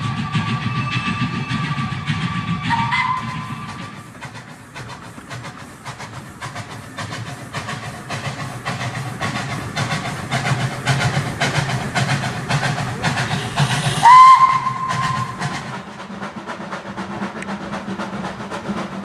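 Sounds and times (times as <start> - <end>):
steam whistle: 0.0 - 4.1, 13.2 - 15.6
model train rumbling and clicking: 0.0 - 19.0.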